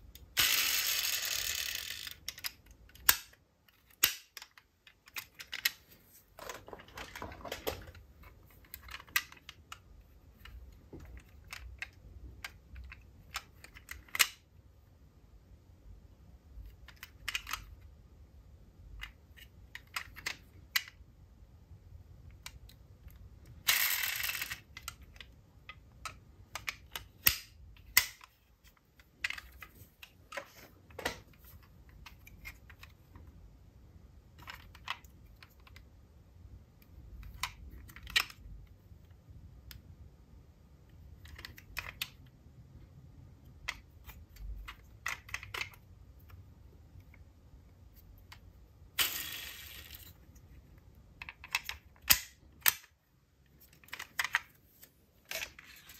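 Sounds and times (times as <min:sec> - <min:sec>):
toy cars clicking and clacking: 0:00.2 - 0:03.4, 0:23.5 - 0:25.2, 0:49.0 - 0:50.3.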